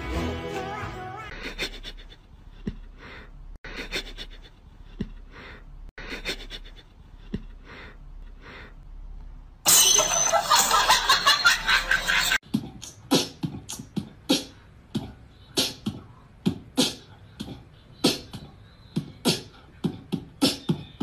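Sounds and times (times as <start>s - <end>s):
person laughing loudly: 10.1s - 12.4s.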